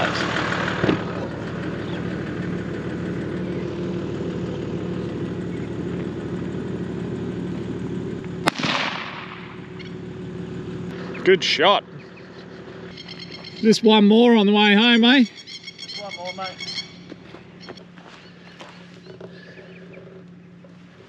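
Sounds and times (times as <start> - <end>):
steady low drone: 0.0 - 21.0
rifle shot with short echo: 8.4 - 9.5.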